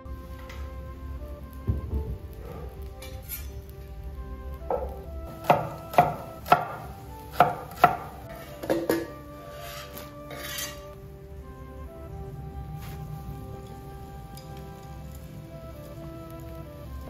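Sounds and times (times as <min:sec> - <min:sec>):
cleaver chopping on wooden board: 0:05.4 - 0:08.1
slices scraped off board: 0:09.5 - 0:10.8.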